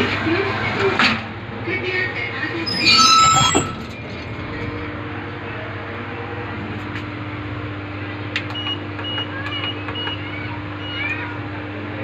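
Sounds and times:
lift car hum: 0.0 - 10.2.

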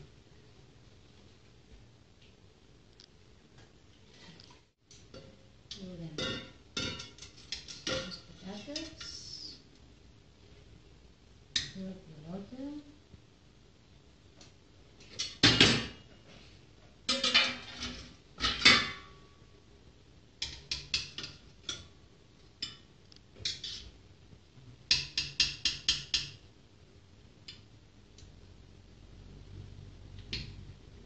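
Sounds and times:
metal spoon clinking on pot: 6.2 - 9.1.

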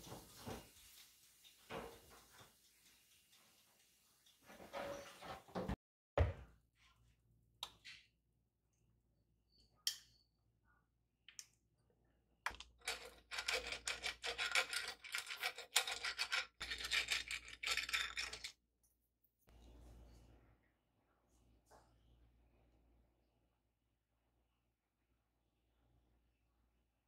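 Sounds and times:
brush scrubbing waffle maker plates: 0.0 - 5.5.

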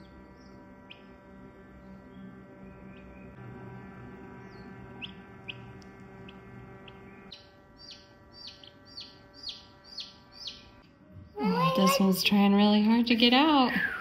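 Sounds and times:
incubator hum: 0.0 - 14.0
chicks peeping: 4.4 - 10.8.

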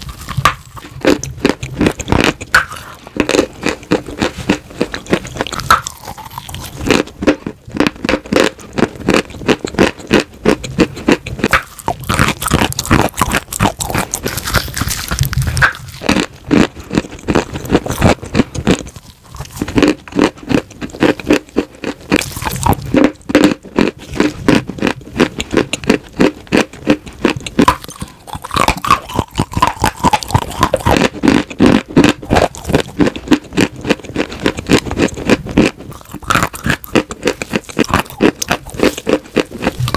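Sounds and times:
chalk crunching and chewing: 0.0 - 39.9.

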